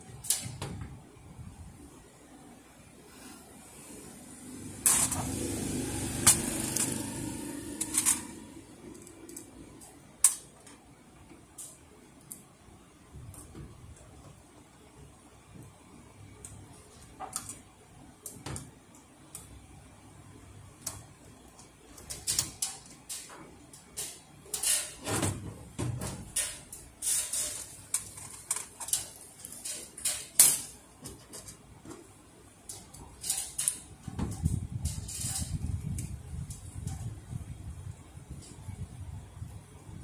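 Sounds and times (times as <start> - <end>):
clicks and taps on metal frame: 20.8 - 37.1.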